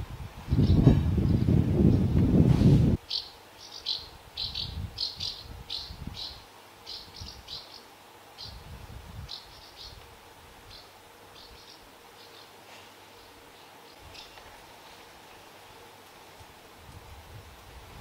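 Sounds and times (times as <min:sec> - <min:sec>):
birds giving high chirps: 0:03.0 - 0:10.0, 0:10.6 - 0:14.4.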